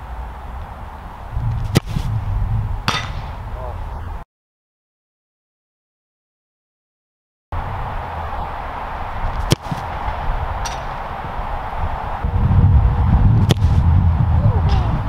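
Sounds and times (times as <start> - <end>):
steady low rumble: 0.0 - 4.2, 7.6 - 15.0
ball kicked sharply: 1.5 - 2.2, 9.4 - 10.0, 13.4 - 13.8.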